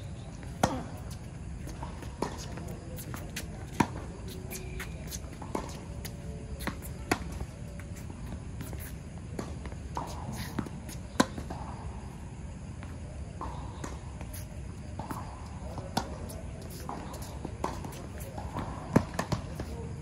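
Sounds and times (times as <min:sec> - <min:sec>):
racket striking ball: 0:00.5 - 0:07.9.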